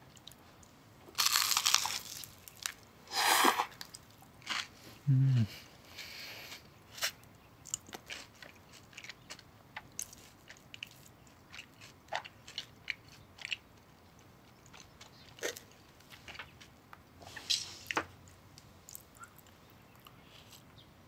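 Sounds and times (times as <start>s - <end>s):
toast being chewed: 0.1s - 2.8s, 3.6s - 4.7s, 7.0s - 20.7s
mouth sounds: 5.0s - 6.2s.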